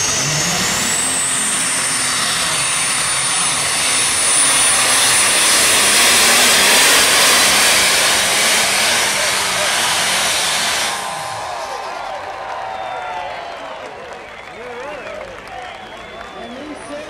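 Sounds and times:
diesel tractor engine running hard: 0.0 - 13.6
turbocharger whine: 0.0 - 13.6.

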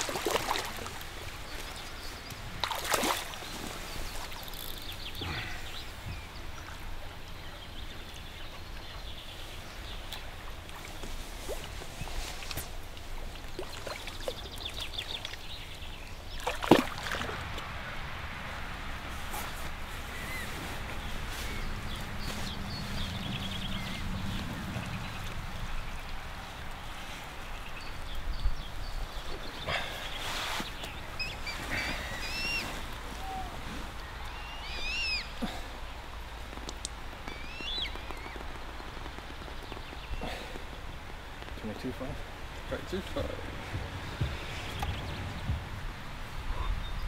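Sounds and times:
bird twittering: 31.2 - 33.5, 34.3 - 35.4.

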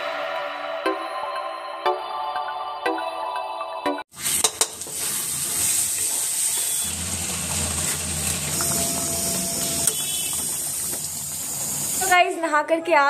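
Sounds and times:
spices frying with a hiss: 4.2 - 12.2.

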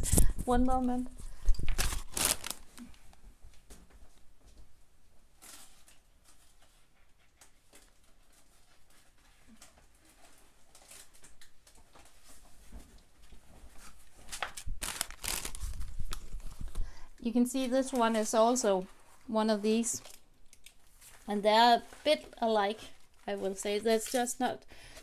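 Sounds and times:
plastic film crinkling and rustling: 0.9 - 3.2, 5.3 - 25.0.

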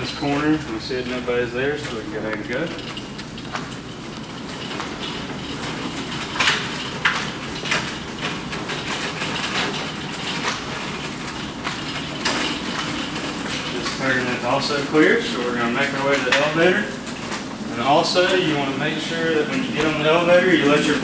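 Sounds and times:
metal rails clinking and rattling: 0.0 - 21.0
stretcher rolling on hard floor: 0.0 - 21.0.

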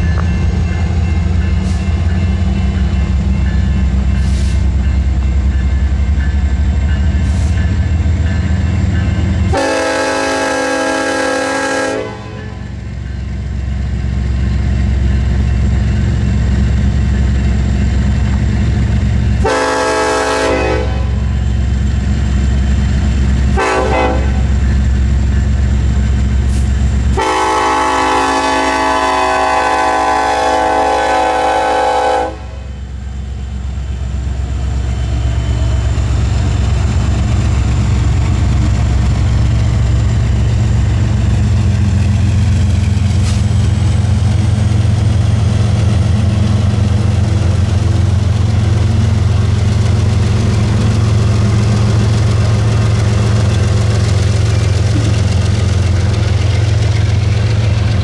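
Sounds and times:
train rumbling on rails: 0.0 - 58.0
locomotive air horn blasts: 9.5 - 12.6, 19.4 - 21.3, 23.5 - 24.5, 27.1 - 32.7.

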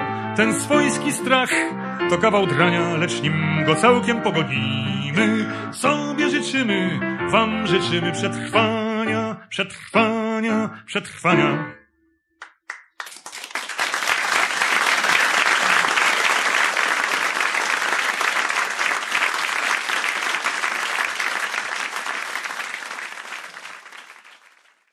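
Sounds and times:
audience applauding: 12.4 - 24.9.

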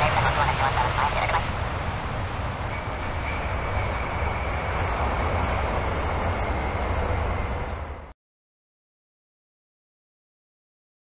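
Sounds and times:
faint high whine: 0.0 - 8.1
jet engine rumble and roar: 0.0 - 8.2.

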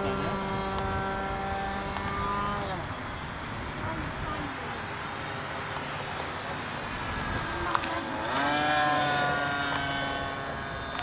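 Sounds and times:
model plane motor whining: 0.0 - 3.4, 6.3 - 11.0.

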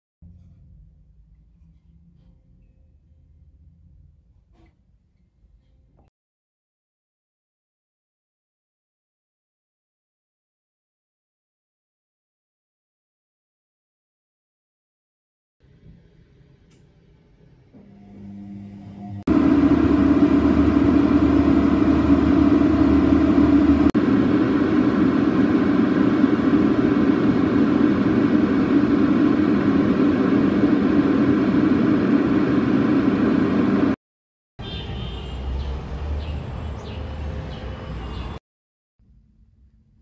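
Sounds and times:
outdoor ambience: 0.2 - 6.1, 15.6 - 34.0
jet engine cabin drone: 16.7 - 34.0.

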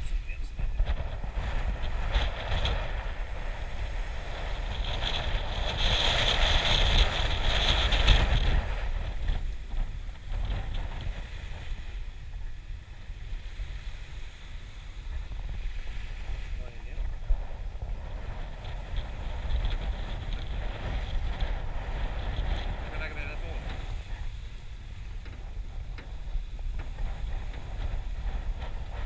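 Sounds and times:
wind rumbling on microphone: 0.0 - 29.0.

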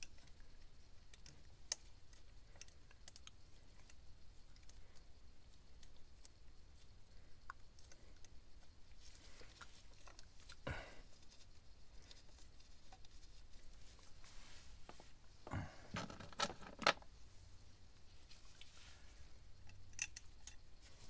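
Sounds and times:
small metal clicks: 0.0 - 5.1, 19.6 - 20.7.

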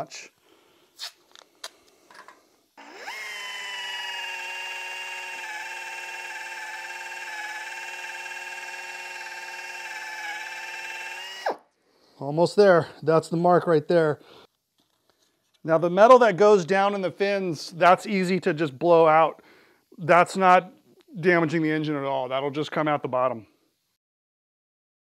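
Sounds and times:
air drill whining: 2.8 - 11.6.

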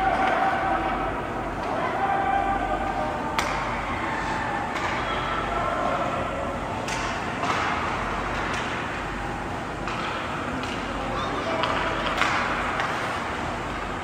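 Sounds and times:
hockey sticks and puck clacking: 2.8 - 3.7, 4.7 - 5.3, 6.8 - 14.0.

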